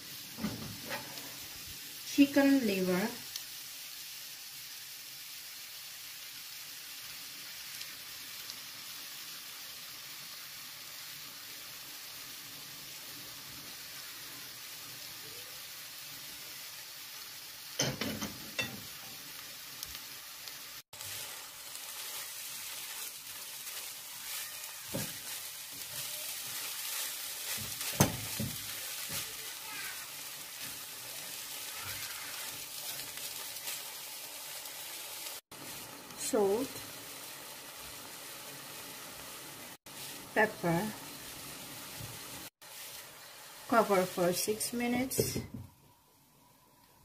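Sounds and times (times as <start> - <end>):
food sizzling in a pan: 0.0 - 47.0
spatula stirring and scraping: 21.0 - 34.0.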